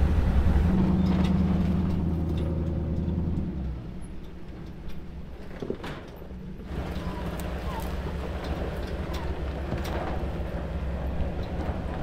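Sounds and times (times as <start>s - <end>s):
distant engine: 0.0s - 6.0s, 6.6s - 12.0s
vehicle engine idling: 6.5s - 12.0s.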